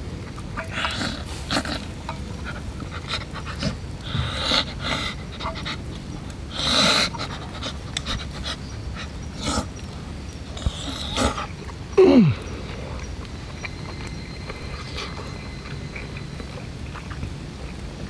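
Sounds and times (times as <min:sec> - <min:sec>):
man huffing and panting: 0:12.0 - 0:13.0.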